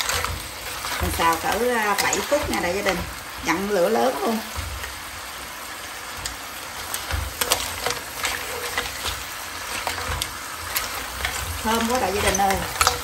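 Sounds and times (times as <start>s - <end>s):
clams sizzling in a pan: 0.0s - 13.0s.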